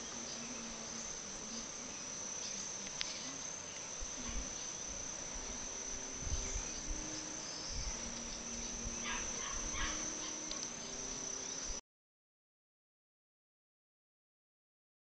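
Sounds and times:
high-pitched insect drone: 0:00.0 - 0:11.8
wind thumping on microphone: 0:06.2 - 0:06.7.

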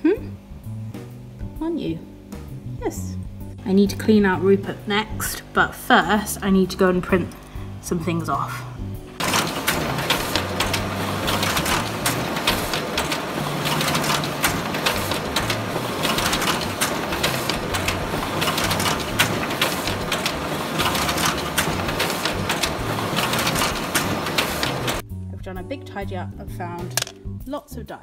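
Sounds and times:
printer clicking and whirring: 0:09.2 - 0:25.0.

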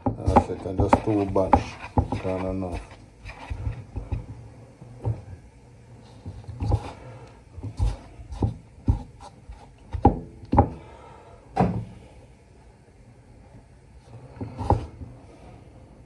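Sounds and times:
chicken pieces knocking in a bowl: 0:00.0 - 0:02.9.

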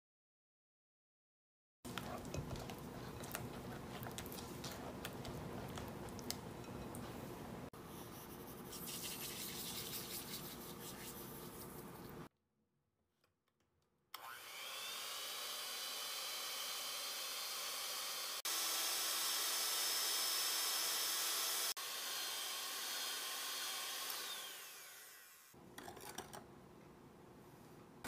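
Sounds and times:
electric hand mixer whining: 0:14.2 - 0:25.6.

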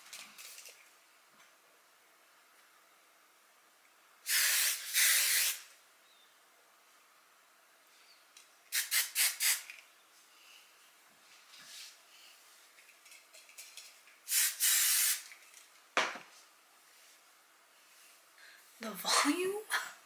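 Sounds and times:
aerosol hairspray hissing: 0:04.2 - 0:05.6, 0:08.7 - 0:09.7, 0:14.3 - 0:15.3
short quick aerosol sprays: 0:04.2 - 0:05.7, 0:08.7 - 0:09.8, 0:14.2 - 0:15.4.

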